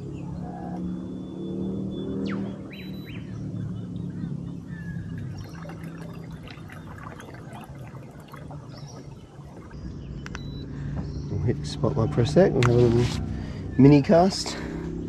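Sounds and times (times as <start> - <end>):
low steady hum: 2.4 - 15.0
water lapping against boat hull: 4.5 - 14.9
small splashes: 4.8 - 10.6.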